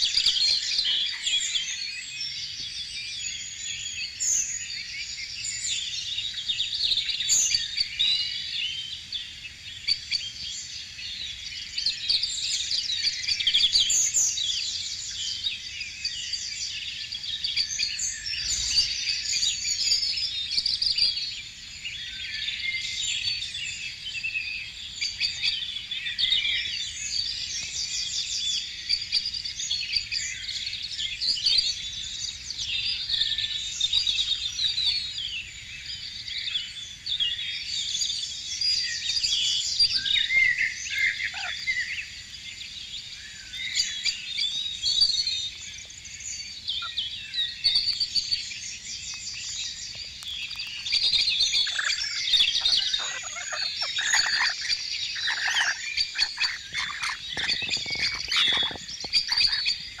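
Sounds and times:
flock of birds chirping: 0.0s - 60.0s
harsh bird screeching: 50.7s - 60.0s.

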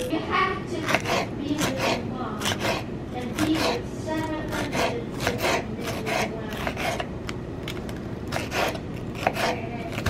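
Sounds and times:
knife slicing on cutting board: 0.9s - 3.8s, 4.5s - 7.1s, 8.3s - 10.0s.

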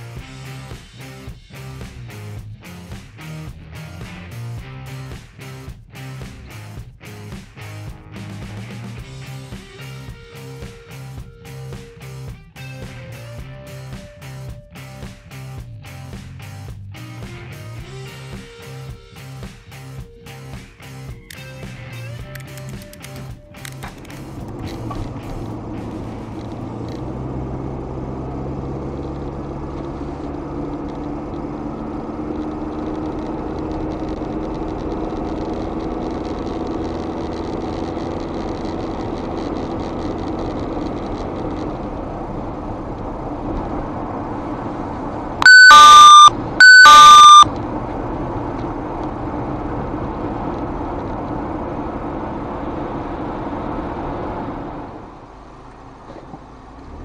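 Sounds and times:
car engine and road noise: 0.0s - 57.0s
electronic beeps: 45.4s - 47.4s.

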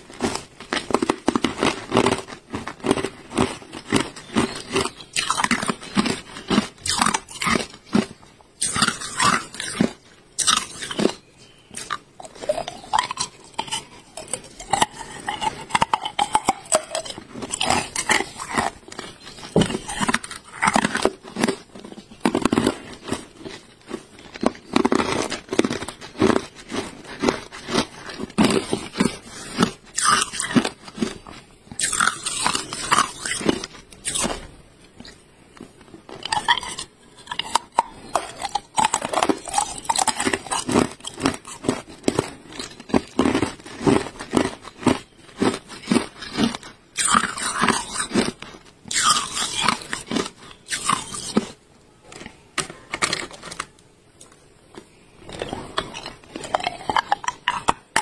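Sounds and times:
ice cubes crunched between teeth: 0.1s - 51.6s, 52.2s - 58.0s.

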